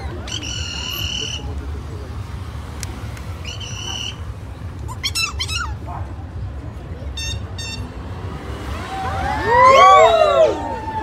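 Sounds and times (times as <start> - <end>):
low street traffic rumble: 0.0 - 11.0.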